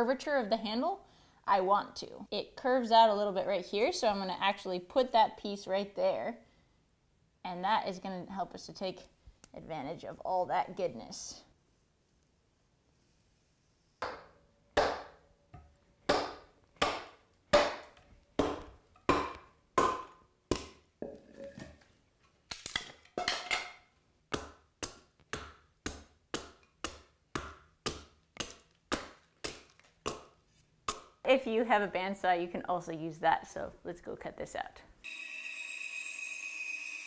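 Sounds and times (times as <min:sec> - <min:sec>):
axe chopping wood: 0:14.0 - 0:15.2, 0:16.0 - 0:20.8.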